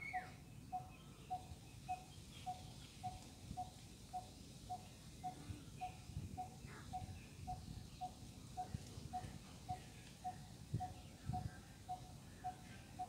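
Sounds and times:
faint high bird chirps: 0.0 - 13.0.

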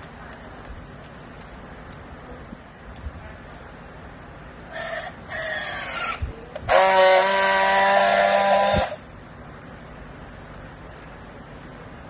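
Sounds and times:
strapping tool motor buzzing: 5.8 - 9.0.

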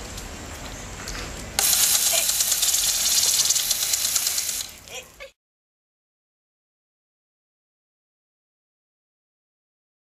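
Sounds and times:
sprinkler water spraying: 1.4 - 5.2.

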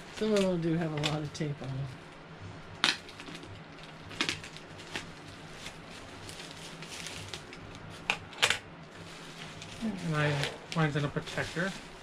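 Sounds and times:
plastic bag crinkling: 2.8 - 12.0.

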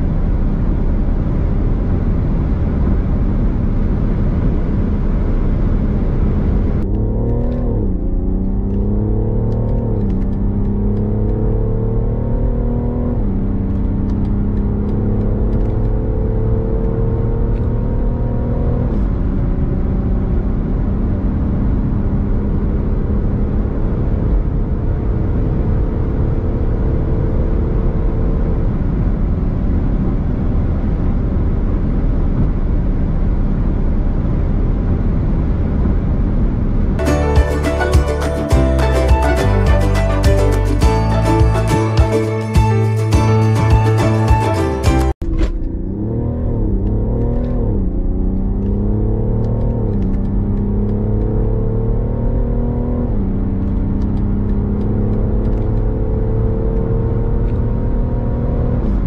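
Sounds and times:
car engine accelerating: 0.0 - 59.0
wind and road noise: 0.0 - 59.0
music: 37.0 - 45.2.

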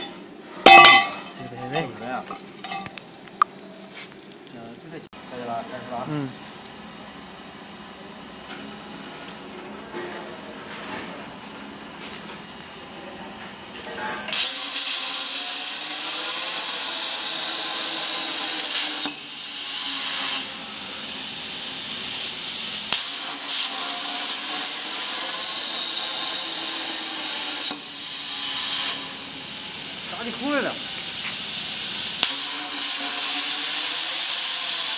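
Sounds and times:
plasma torch hissing and whining: 14.3 - 34.9.

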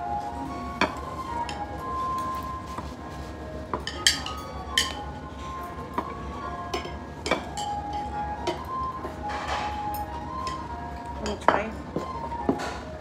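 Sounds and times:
soft background music: 0.0 - 13.0
chopsticks clinking on ceramic bowls: 3.8 - 5.0, 6.7 - 8.6.

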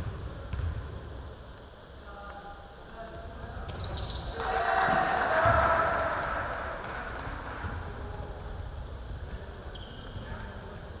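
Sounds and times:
players shouting: 4.3 - 6.8.

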